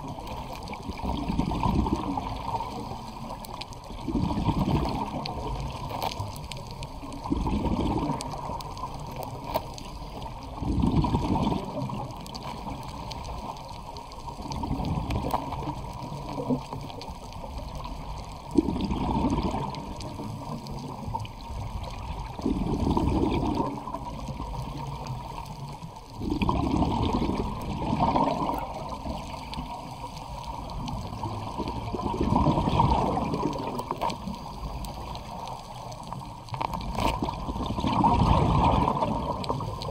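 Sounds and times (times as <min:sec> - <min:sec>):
exhaled bubbles rumbling: 0:00.0 - 0:39.9
steady underwater hiss: 0:00.0 - 0:39.9.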